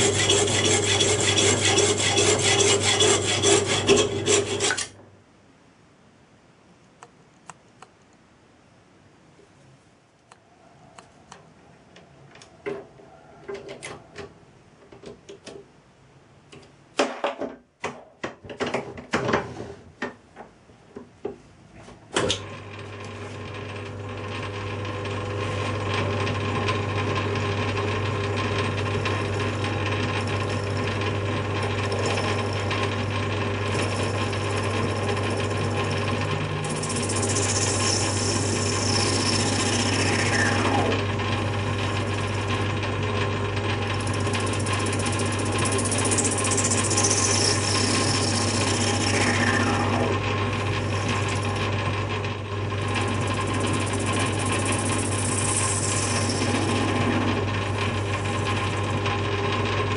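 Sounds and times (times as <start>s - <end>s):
lathe motor humming: 0.0s - 4.9s, 23.0s - 59.9s.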